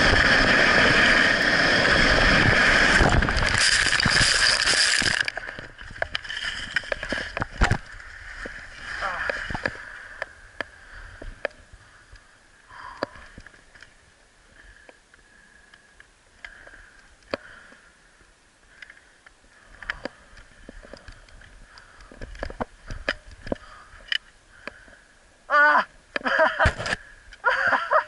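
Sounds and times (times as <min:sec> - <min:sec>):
ski and pole clicks and knocks: 0:03.0 - 0:08.6.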